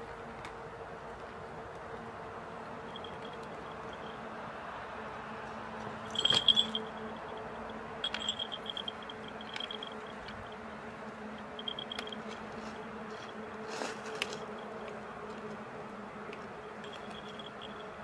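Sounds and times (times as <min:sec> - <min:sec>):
steady low hum: 0:00.0 - 0:18.0
cat collar bells jingling: 0:02.9 - 0:04.2, 0:06.1 - 0:10.6, 0:11.5 - 0:12.2, 0:16.8 - 0:18.0.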